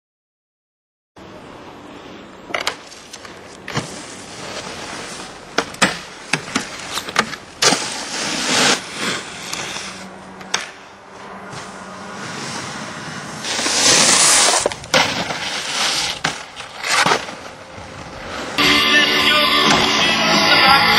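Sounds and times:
snowboard clacking on rails: 2.5s - 18.6s
snowboard scraping across snow: 2.9s - 7.0s, 7.6s - 10.2s, 11.2s - 20.9s.

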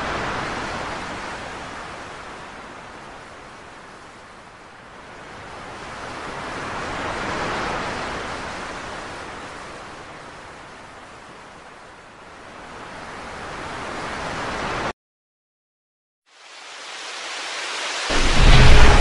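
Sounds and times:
waves washing up pebble beach: 17.0s - 19.0s.

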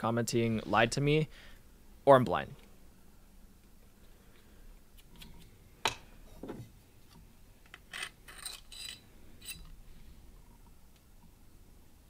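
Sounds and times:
metal parts clinking and scraping: 7.9s - 9.8s.

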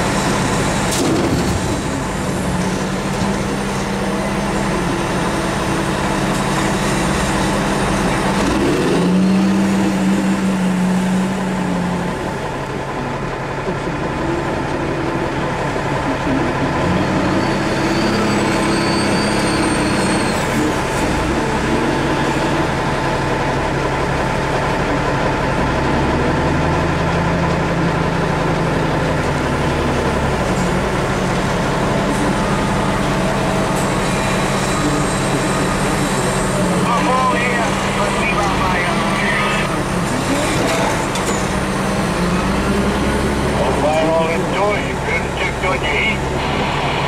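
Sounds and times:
truck engine idling: 0.0s - 18.4s, 20.4s - 47.0s
wheel loader diesel engine: 0.0s - 47.0s.

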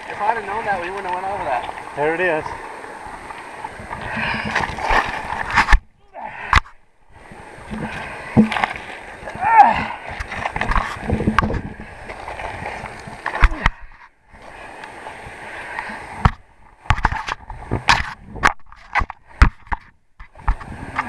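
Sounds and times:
river water sloshing: 0.0s - 21.0s
camera rubbing and knocking: 4.0s - 5.9s, 10.2s - 11.9s, 16.2s - 21.0s.

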